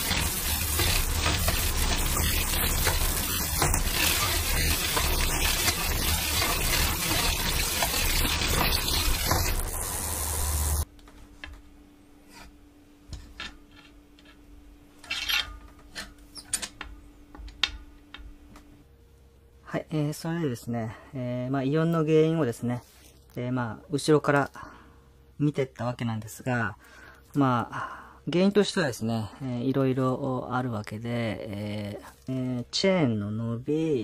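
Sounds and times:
bike chain rattling and grinding: 0.0 - 9.9
faint steady hum: 9.5 - 34.0.

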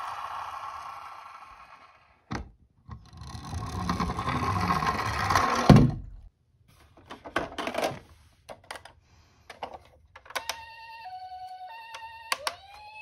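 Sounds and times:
plastic toy clicks: 11.9 - 13.0.

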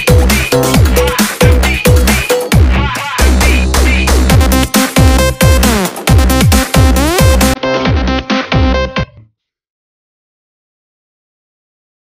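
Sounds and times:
heavy bass pulsing: 0.0 - 8.9
electronic dance music: 0.0 - 9.2.

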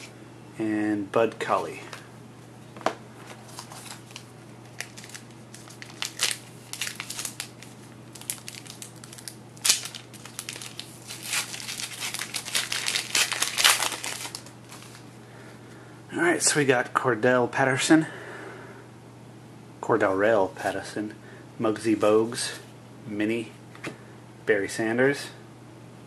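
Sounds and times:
wrapper tearing and crinkling: 3.5 - 15.0.

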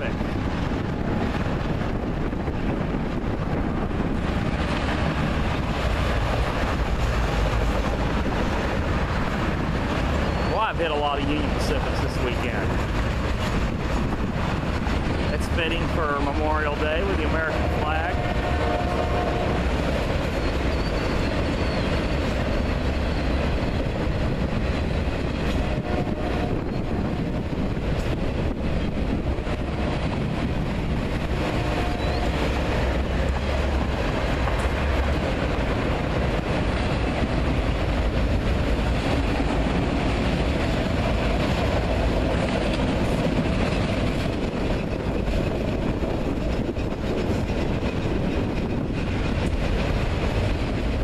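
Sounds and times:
freight train rolling over bridge: 0.0 - 51.0
wind buffeting microphone: 0.0 - 51.0
faint high wheel squeal: 10.2 - 10.7, 20.4 - 22.2.

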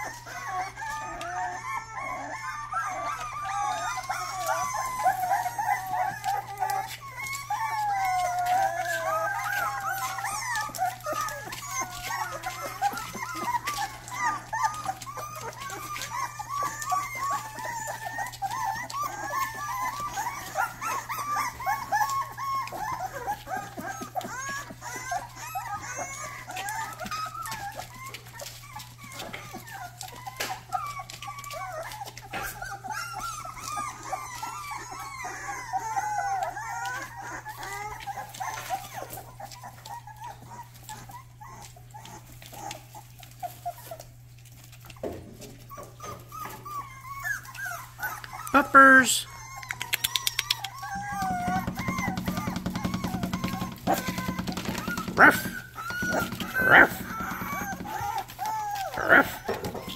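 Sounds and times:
puppies whining and squealing: 0.0 - 59.9.

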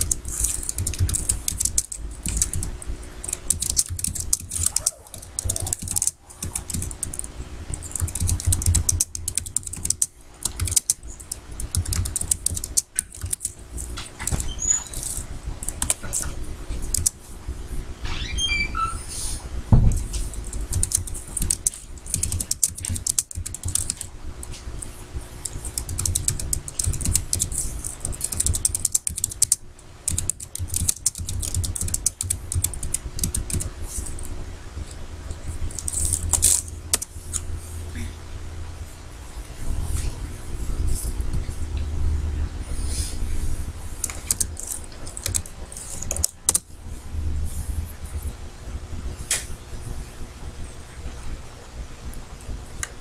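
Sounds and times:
computer keyboard typing: 0.0 - 17.2, 19.9 - 35.0, 35.6 - 37.4, 44.0 - 46.7
thump: 19.7 - 20.0.

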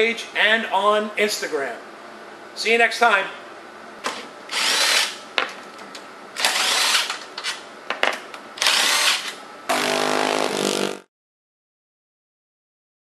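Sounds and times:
impact driver bursts: 8.6 - 10.8.

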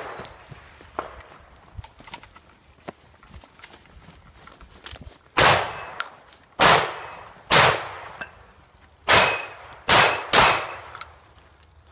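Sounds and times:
running footsteps on dirt: 0.0 - 6.6
handgun shots echoing: 5.4 - 8.3, 9.1 - 11.1.

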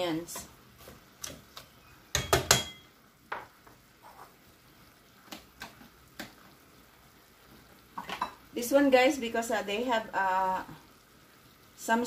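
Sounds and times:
faint sizzling: 0.0 - 12.0.

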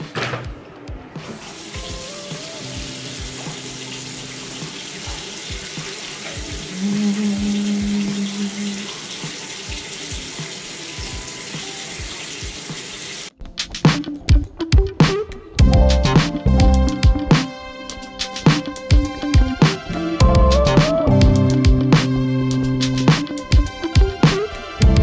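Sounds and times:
sink tap running: 1.3 - 13.3.

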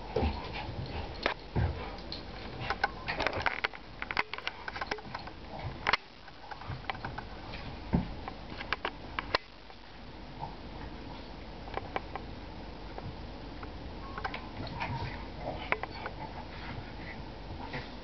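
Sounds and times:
dogs sniffing and scuffling: 0.0 - 12.2, 14.2 - 18.0.

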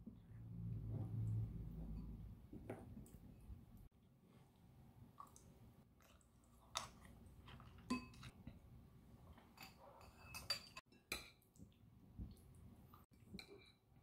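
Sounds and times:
spoon and ceramic bowls clinking: 7.8 - 8.3, 9.5 - 11.4.

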